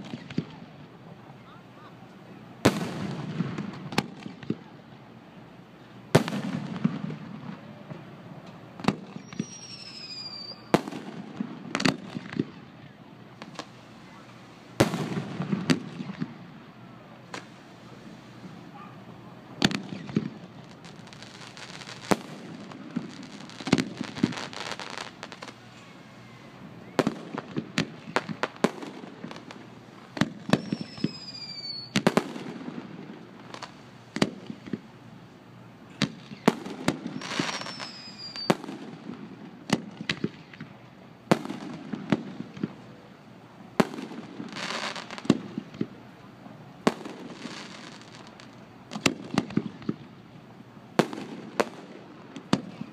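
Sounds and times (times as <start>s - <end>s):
fireworks crackling: 0.0s - 52.9s
fireworks bangs: 2.6s - 4.7s, 6.1s - 16.6s, 17.3s - 34.9s, 35.9s - 43.1s, 43.7s - 46.0s, 46.8s - 50.2s, 50.9s - 52.9s
falling whistle: 9.2s - 10.7s, 30.5s - 32.0s, 37.2s - 38.5s.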